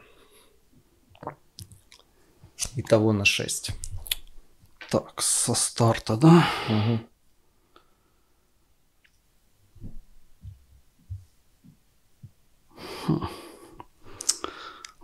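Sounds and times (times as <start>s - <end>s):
soft low thumps of cards: 9.7s - 12.4s.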